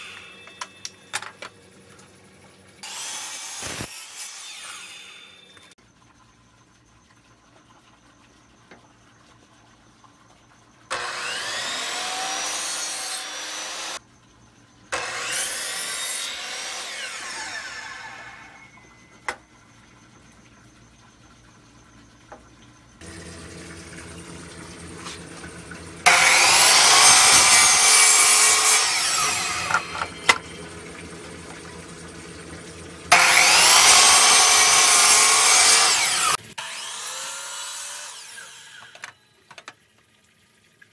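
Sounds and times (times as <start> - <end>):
saw motor running: 2.8 - 5.6, 10.9 - 14.0, 15.0 - 19.0, 23.0 - 39.0
miter saw cutting wood: 2.8 - 5.7, 10.9 - 14.0, 14.9 - 18.9, 23.0 - 39.1.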